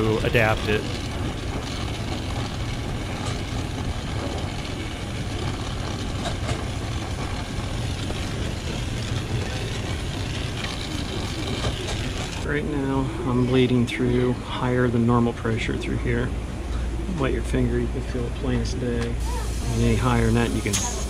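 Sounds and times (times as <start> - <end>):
torch flame hissing: 0.0 - 12.5, 19.2 - 21.0.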